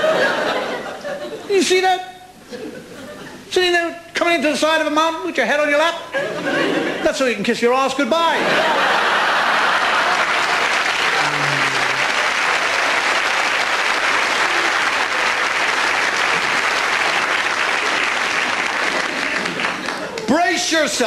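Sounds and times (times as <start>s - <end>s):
audience applauding: 9.2s - 20.4s.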